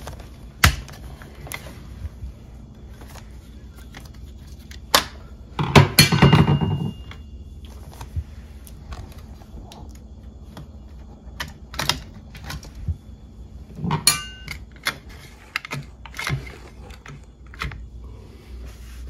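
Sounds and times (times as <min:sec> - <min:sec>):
metallic clatter ringing: 0:13.9 - 0:14.6.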